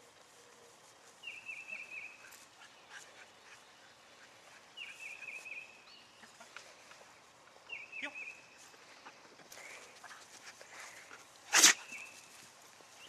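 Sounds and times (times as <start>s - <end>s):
faint clicks and rustles: 0.0s - 5.6s, 8.6s - 13.0s
bird singing high phrase: 7.7s - 8.6s.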